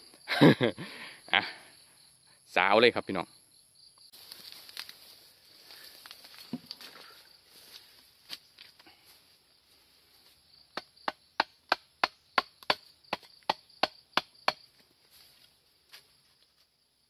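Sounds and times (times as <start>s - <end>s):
machete chopping wooden stick: 10.7s - 14.7s.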